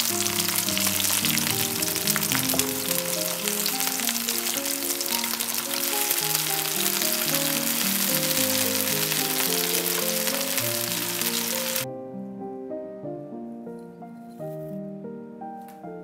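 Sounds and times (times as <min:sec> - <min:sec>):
meat sizzling in a frying pan: 0:00.0 - 0:11.8
soft melodic background music: 0:00.0 - 0:16.0.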